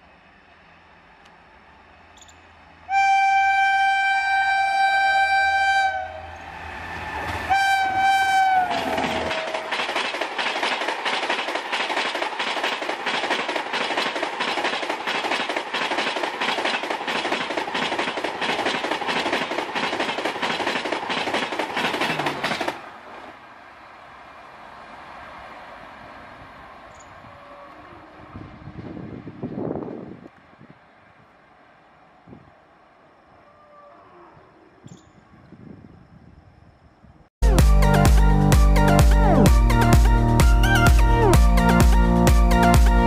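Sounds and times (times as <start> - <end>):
locomotive horn blasts: 2.9 - 6.5, 7.4 - 9.7
train wheels clattering on rails: 8.5 - 23.4.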